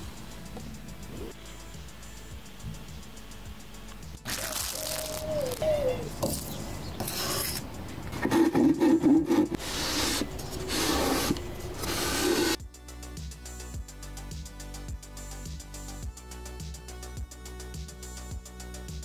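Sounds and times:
wooden board rubbing on sandpaper: 6.2s - 12.6s.

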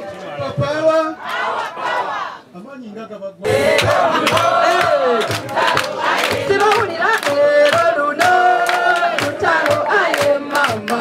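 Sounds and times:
crowd singing: 0.0s - 2.5s, 3.4s - 11.0s
steady beat: 3.5s - 11.0s.

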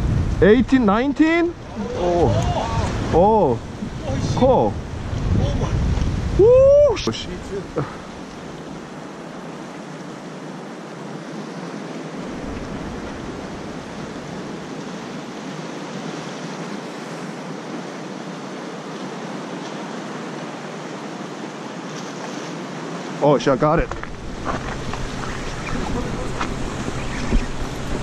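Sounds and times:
wind buffeting microphone: 0.0s - 9.6s, 12.1s - 16.0s, 23.6s - 28.0s
small waves washing on rocks: 7.0s - 28.0s.

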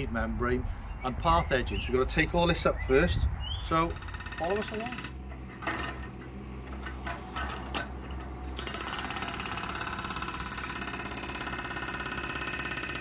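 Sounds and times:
mini excavator running: 3.8s - 13.0s
hydraulic breaker hammering: 3.9s - 13.0s.

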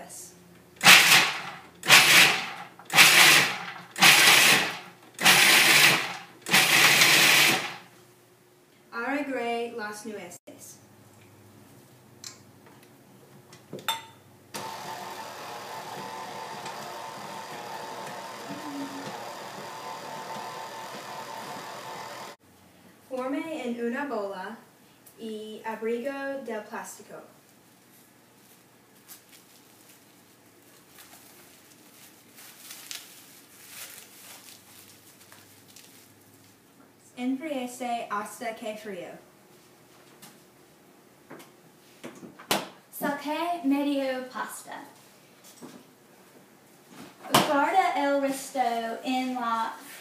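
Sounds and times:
stand mixer motor whining: 3.0s - 7.8s, 14.6s - 22.4s
plastic cling wrap crinkling: 28.4s - 36.6s.

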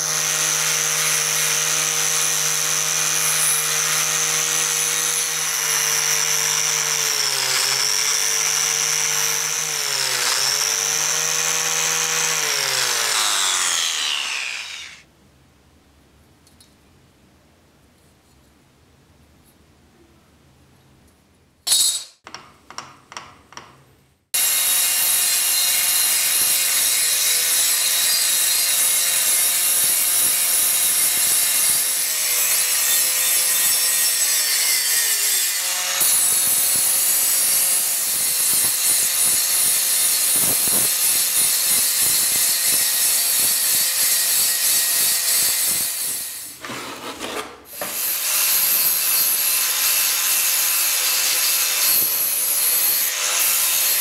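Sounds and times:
angle grinder grinding steel: 0.0s - 15.0s, 24.4s - 54.0s
short scrapes: 46.5s - 48.0s.

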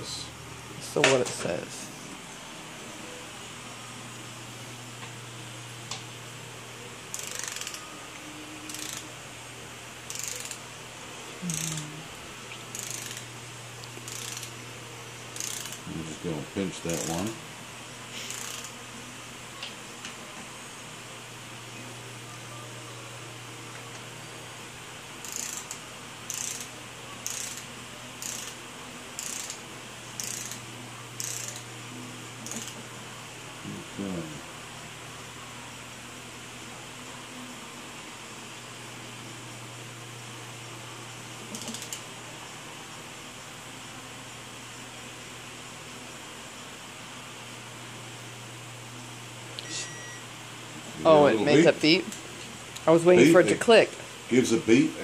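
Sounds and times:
steady low hum: 0.0s - 55.0s
ratchet wrench clicking: 7.1s - 7.8s, 8.7s - 9.0s, 10.1s - 10.6s, 11.5s - 11.8s, 12.7s - 13.2s, 14.1s - 14.5s, 15.4s - 15.8s, 17.0s - 17.2s, 18.3s - 18.7s, 25.2s - 28.6s, 29.2s - 29.6s, 30.2s - 30.6s, 31.2s - 31.6s, 32.4s - 32.8s, 41.6s - 42.0s.

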